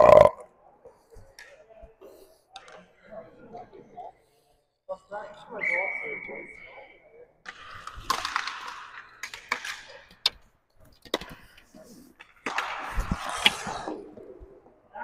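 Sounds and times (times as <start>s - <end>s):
hockey sticks and puck clacking: 2.5s - 3.0s, 7.4s - 14.6s
stick pad and skate noise: 7.4s - 15.0s.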